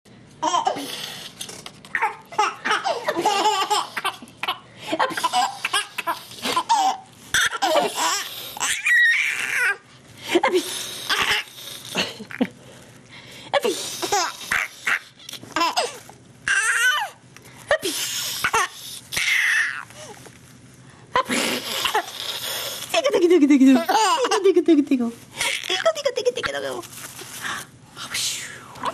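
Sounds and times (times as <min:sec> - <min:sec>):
baby laughing: 0:01.9 - 0:09.8, 0:14.0 - 0:17.2, 0:23.7 - 0:24.5.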